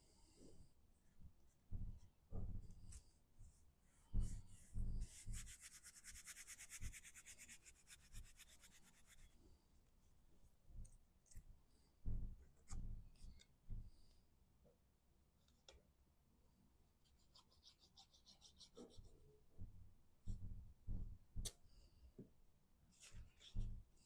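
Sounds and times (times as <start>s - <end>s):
hands rubbing over cardstock: 4.1s - 9.3s.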